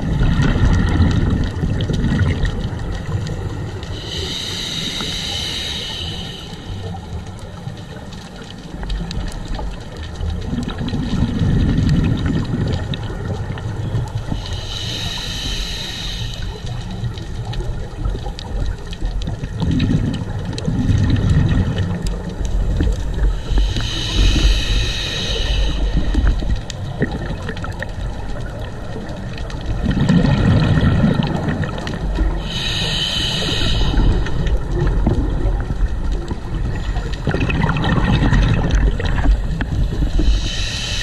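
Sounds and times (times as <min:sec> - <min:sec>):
exhaled bubbles rumbling: 0:00.0 - 0:41.0
faint crackling clicks: 0:00.0 - 0:41.0
regulator hiss: 0:03.8 - 0:07.2, 0:14.3 - 0:17.1, 0:23.2 - 0:26.6, 0:32.3 - 0:34.8, 0:39.2 - 0:41.0.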